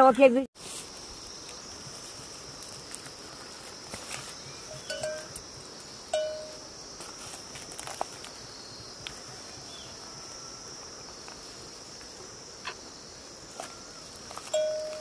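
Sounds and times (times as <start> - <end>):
high insect drone: 0.6 - 15.0
cattle bell ringing: 4.7 - 5.4, 6.2 - 6.6, 14.5 - 15.0.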